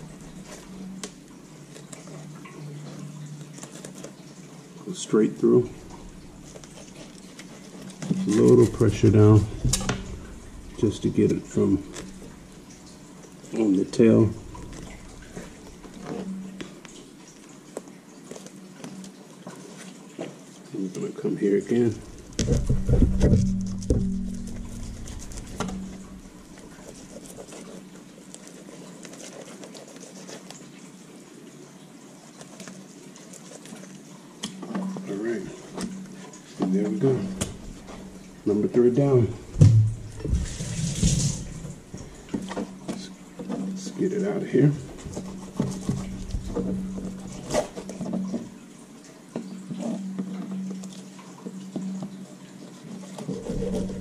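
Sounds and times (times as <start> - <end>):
steady low hum: 5.4 - 17.1, 21.8 - 27.4, 36.9 - 48.7.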